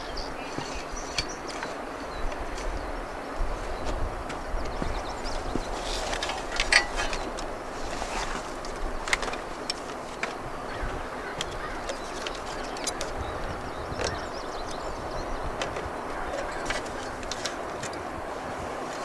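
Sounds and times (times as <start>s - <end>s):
birds calling: 0.0s - 19.0s
clinks and knocks of gear: 6.0s - 7.5s.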